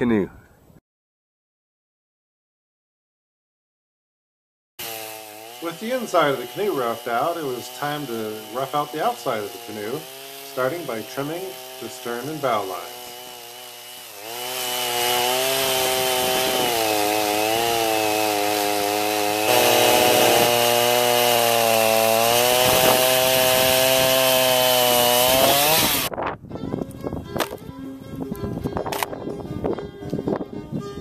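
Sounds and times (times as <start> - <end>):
chainsaw cutting wood: 4.8 - 26.1, 27.4 - 27.7, 28.9 - 29.1.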